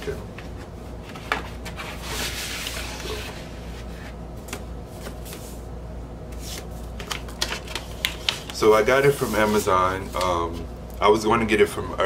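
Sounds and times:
paper and cardboard rustling: 1.0s - 5.6s, 6.4s - 10.3s.

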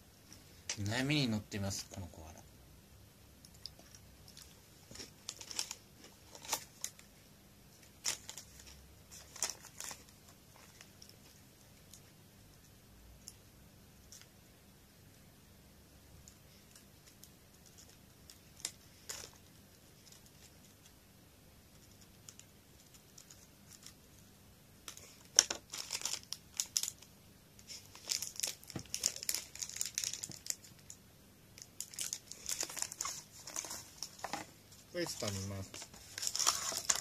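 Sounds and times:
foil snack wrapper rustling: 24.9s - 27.1s, 27.7s - 30.9s, 31.7s - 34.3s, 35.0s - 37.0s.

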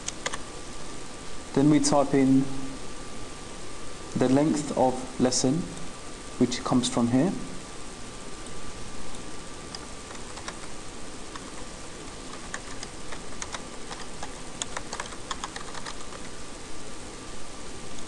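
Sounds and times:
typing on computer keyboard: 0.0s - 0.4s, 9.7s - 10.7s, 12.3s - 16.3s.

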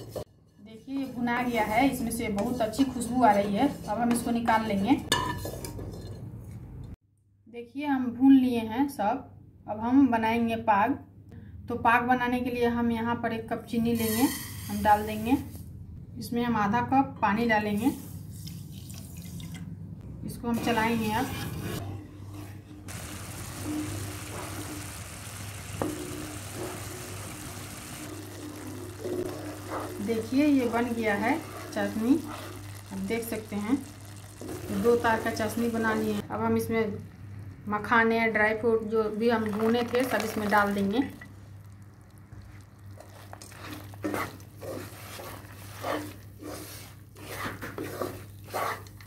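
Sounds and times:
wooden spatula stirring: 0.0s - 6.2s, 20.7s - 36.2s, 39.2s - 49.0s
syrup bubbling and sizzling: 20.8s - 49.0s
low hum: 21.9s - 39.4s.

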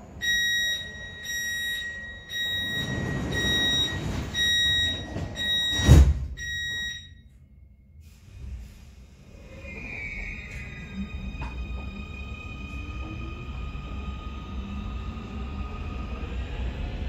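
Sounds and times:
high warning beep: 0.2s - 7.3s
sliding doors rumbling shut: 2.1s - 6.8s
doors closing thud: 2.5s - 6.8s.

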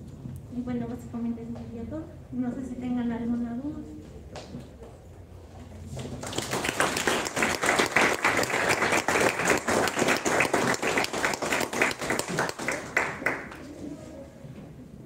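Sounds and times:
audience applauding: 6.2s - 13.7s.

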